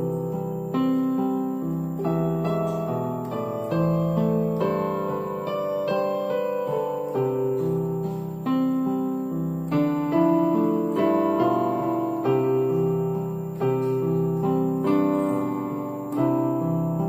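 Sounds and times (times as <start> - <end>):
slow keyboard music: 0.0 - 17.0.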